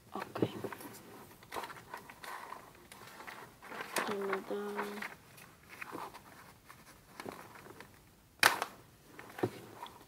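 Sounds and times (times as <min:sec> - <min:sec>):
paper rustling: 0:00.7 - 0:08.0
loud paper crackle: 0:01.6 - 0:06.1.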